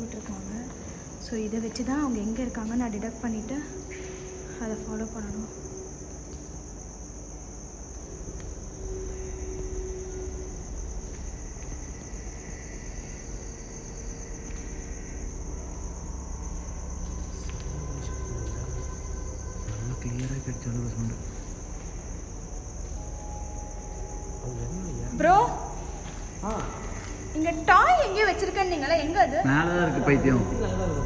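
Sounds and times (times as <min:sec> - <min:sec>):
crickets chirping: 0:00.0 - 0:31.0.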